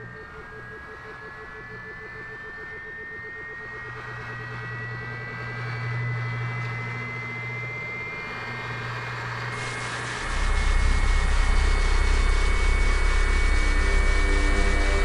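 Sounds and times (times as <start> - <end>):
low hum with high whining tones: 0.0 - 15.0
loud deep rumble: 9.6 - 15.0.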